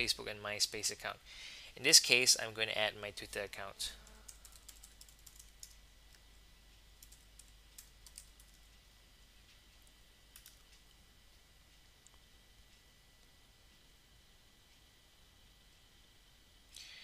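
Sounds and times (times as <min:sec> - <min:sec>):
keyboard typing clicks: 0:04.2 - 0:05.8, 0:07.0 - 0:08.7, 0:10.3 - 0:10.9.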